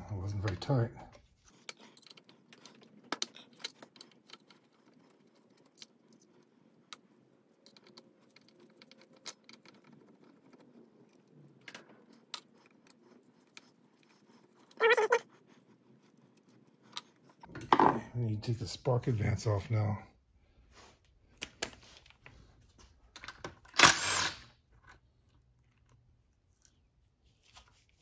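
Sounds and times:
screwdriver and screws clicking: 23.2s - 25.0s.

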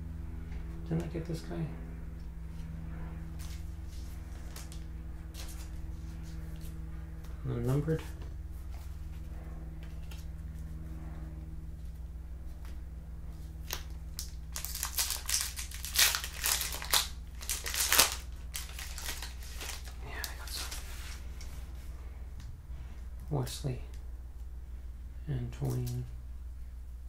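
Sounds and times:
foil wrapper crinkling and tearing: 13.6s - 20.9s.

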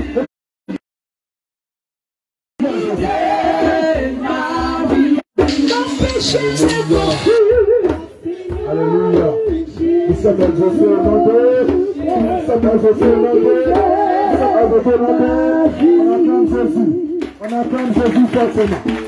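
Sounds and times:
low regular beat: 2.6s - 17.4s
woman singing through loudspeakers: 4.0s - 16.8s.

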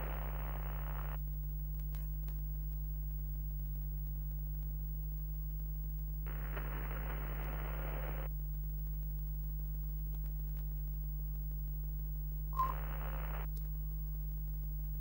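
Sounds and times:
static hiss: 0.0s - 1.2s, 3.0s - 9.8s, 10.9s - 15.0s
low electrical hum: 0.0s - 15.0s
short beep: 12.6s - 12.8s.

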